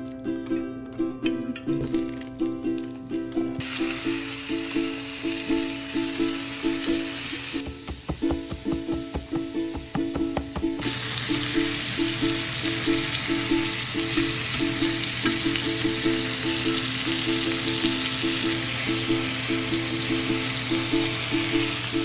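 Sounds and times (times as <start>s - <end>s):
background music: 0.0s - 22.0s
steaks sizzling in a skillet: 3.6s - 8.1s, 10.8s - 22.0s
knife chopping on cutting board: 7.6s - 10.8s.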